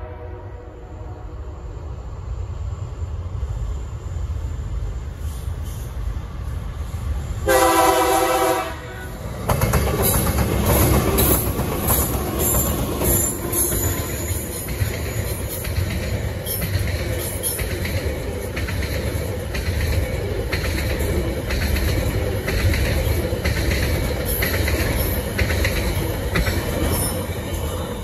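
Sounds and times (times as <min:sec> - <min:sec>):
train horn blast: 0:00.0 - 0:01.6, 0:07.4 - 0:09.2
diesel locomotive engine rumble: 0:00.0 - 0:28.0
train wheels on rails: 0:01.4 - 0:28.0.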